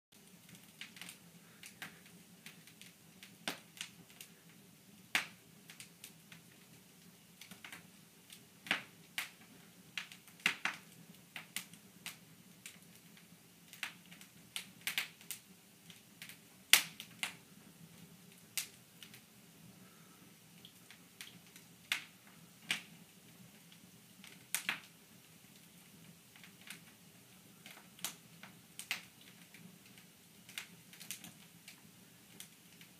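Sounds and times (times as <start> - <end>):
wood fire crackling and popping: 0.1 - 32.9.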